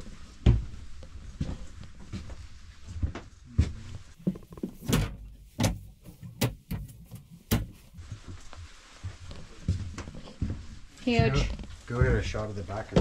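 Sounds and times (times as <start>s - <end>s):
cabinet doors opening and shutting: 4.6s - 7.8s.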